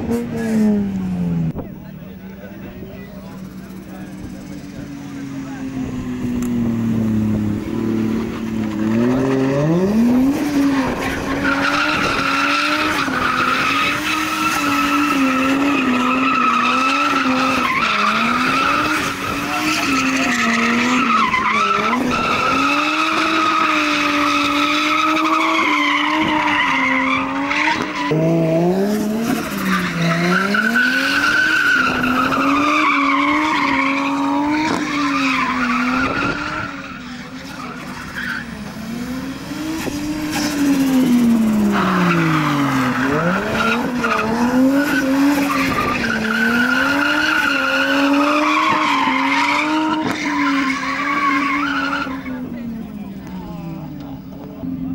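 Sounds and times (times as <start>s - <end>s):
car engine revving: 0.0s - 54.9s
tyre squeal: 8.2s - 28.3s, 28.9s - 38.7s, 40.1s - 52.5s.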